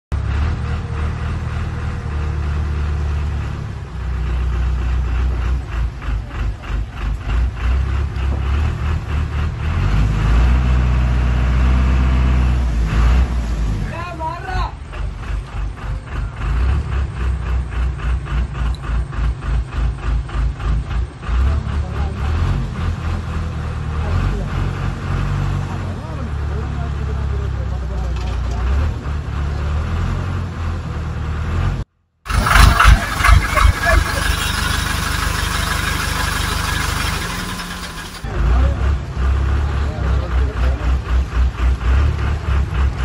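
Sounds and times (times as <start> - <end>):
heavy engine rumbling: 0.1 - 43.0
onlookers' voices: 23.4 - 29.8, 32.3 - 42.5.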